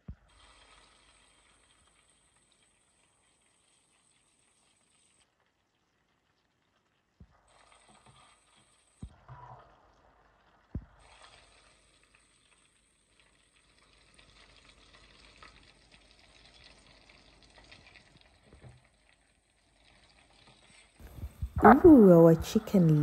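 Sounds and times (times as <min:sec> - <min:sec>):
deep-frying sizzle and crackle: 0:00.0 - 0:21.5.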